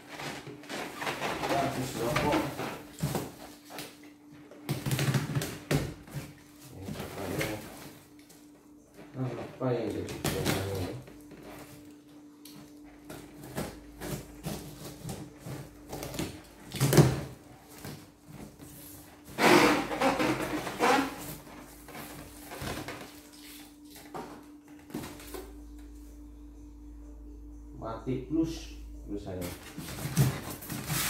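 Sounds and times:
plastic and cardboard rustling: 0.0s - 8.2s, 12.5s - 25.6s, 29.4s - 31.0s
low hum: 6.7s - 30.9s.

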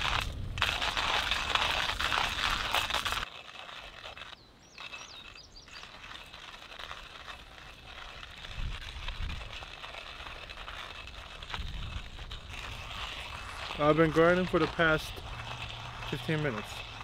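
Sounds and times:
bird chirps: 4.3s - 6.0s.

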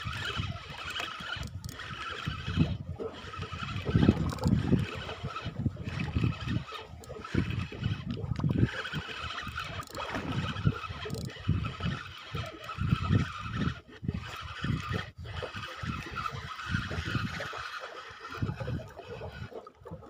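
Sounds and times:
fishing reel whirring: 0.0s - 20.0s
wind buffeting microphone: 0.0s - 20.0s.

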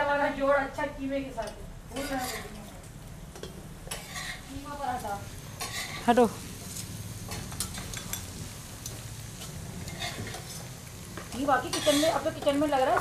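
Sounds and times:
food sizzling: 0.0s - 13.0s
spoon scraping a frying pan: 1.9s - 2.7s, 3.4s - 5.0s, 5.6s - 6.1s, 9.4s - 13.0s.

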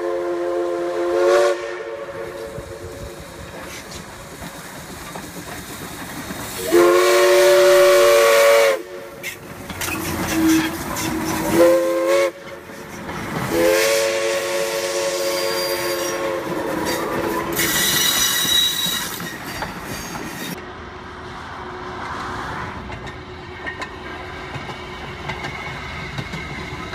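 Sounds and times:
steam locomotive whistle blasts: 0.0s - 3.4s, 6.6s - 9.4s, 10.3s - 12.6s, 13.5s - 19.3s
steam hissing: 0.0s - 20.6s
locomotive rumble: 0.0s - 26.9s.

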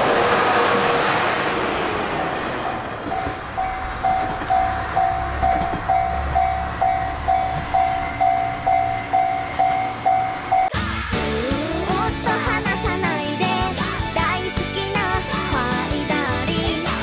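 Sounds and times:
diesel railcar engine rumble: 0.0s - 17.0s
level crossing alarm dinging: 3.1s - 10.8s.

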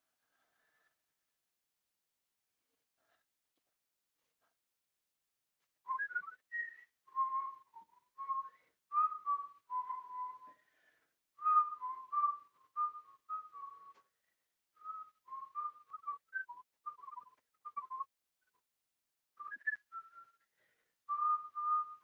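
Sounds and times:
woman whistling a tune: 5.9s - 10.6s, 11.4s - 14.1s, 14.8s - 18.6s, 19.4s - 20.5s, 21.1s - 22.0s.

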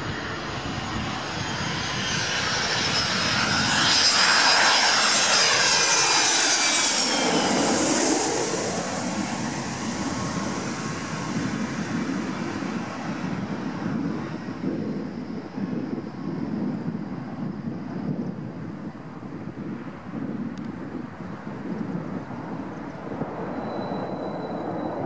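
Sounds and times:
high engine whine: 0.0s - 18.8s
jet airliner passing overhead: 0.0s - 25.0s.

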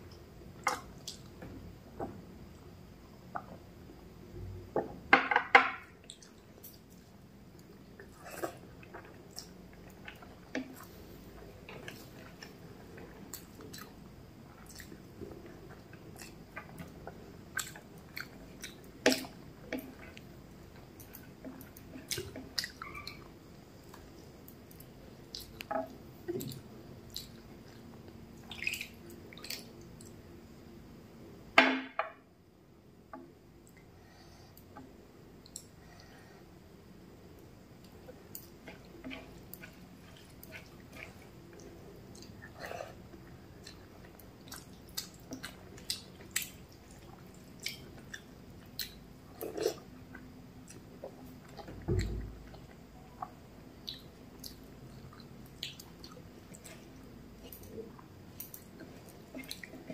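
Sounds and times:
person chewing food: 6.0s - 30.2s, 37.7s - 59.9s.

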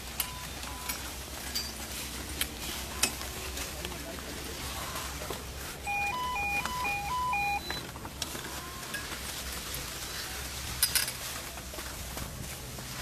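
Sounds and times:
electronic beeping jingle: 5.8s - 7.8s.

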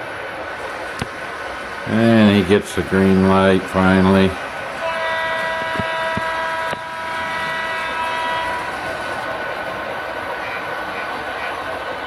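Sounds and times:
model trains rolling on track: 0.0s - 12.0s
model locomotive horn chord: 4.8s - 9.2s.

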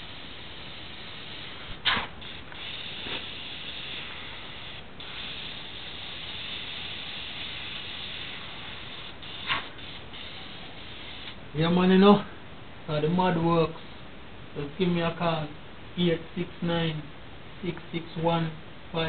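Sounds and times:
airbrush hissing: 0.0s - 11.4s
short loud airbrush bursts: 0.0s - 11.4s.

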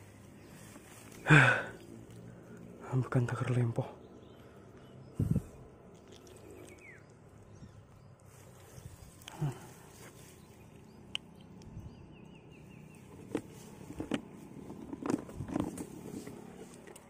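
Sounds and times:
rustling in grass: 0.0s - 2.5s, 8.0s - 11.0s, 12.6s - 16.9s.

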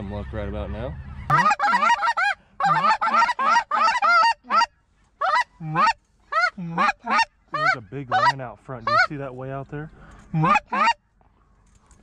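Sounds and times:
geese honking: 0.0s - 11.1s.

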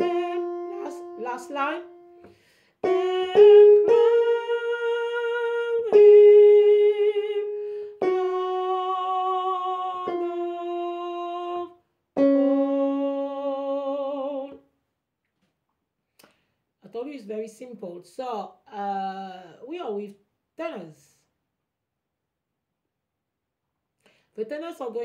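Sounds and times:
woman singing unaccompanied: 0.0s - 14.7s.

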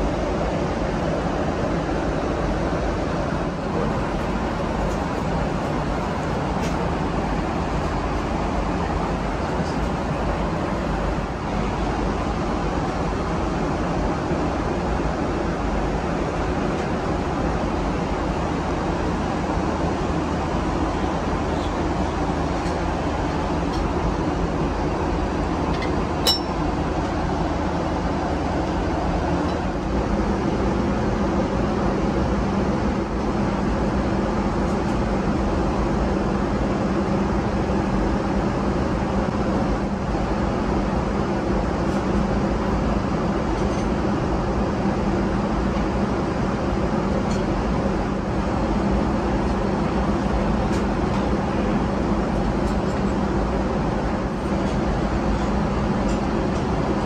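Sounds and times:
jet cabin drone: 0.0s - 57.0s
china lid clink: 26.2s - 26.6s.

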